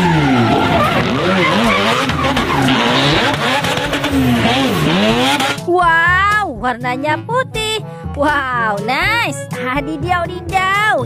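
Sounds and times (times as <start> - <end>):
tyres squealing: 0.0 - 5.6
car engine revving: 0.0 - 5.8.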